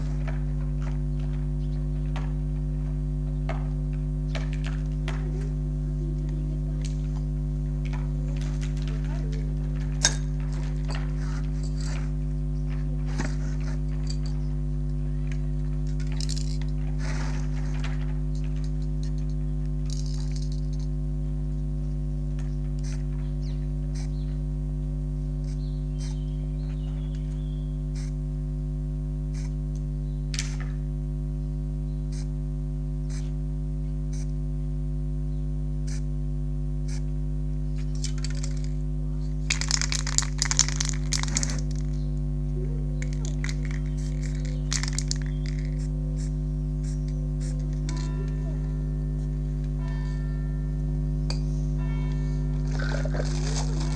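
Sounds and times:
low multi-tone hum: 0.0s - 53.9s
spray cans clicking: 19.9s - 20.6s, 38.0s - 38.8s, 39.5s - 42.0s, 43.0s - 45.8s.

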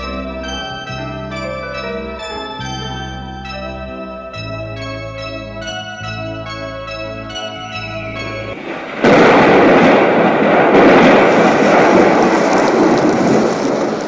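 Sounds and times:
soft keyboard music notes: 0.0s - 10.0s
stormy sea roar: 8.1s - 14.0s.

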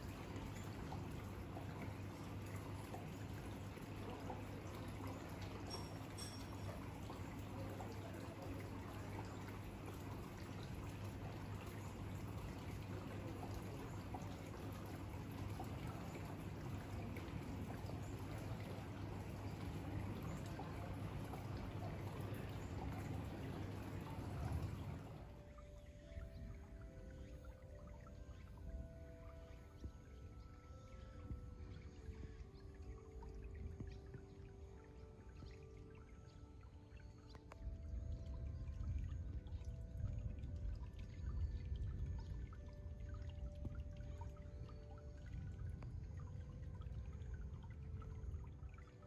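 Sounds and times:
rainwater trickling off roof: 0.0s - 25.6s
steady low hum: 0.0s - 49.0s.

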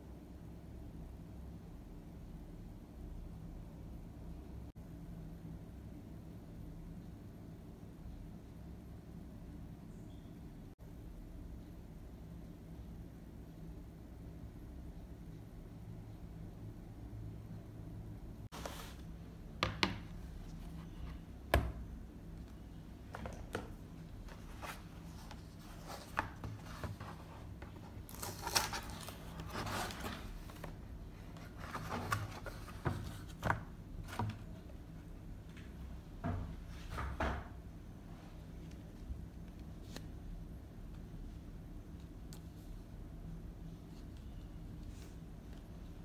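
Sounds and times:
cardboard and plastic rustling: 23.1s - 34.6s.

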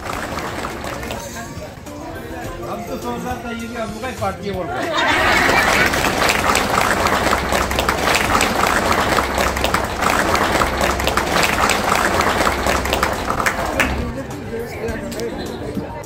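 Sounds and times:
people clapping: 0.0s - 1.7s, 4.9s - 14.2s.

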